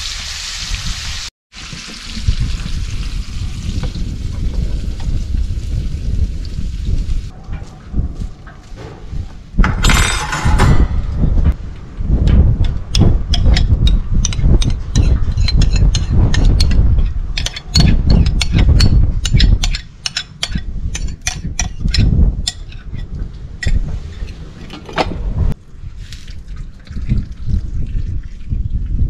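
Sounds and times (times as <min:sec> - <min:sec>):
low rumble: 0:02.2 - 0:19.6, 0:20.6 - 0:29.0
metal spoon scraping glass bowl: 0:13.6 - 0:24.4.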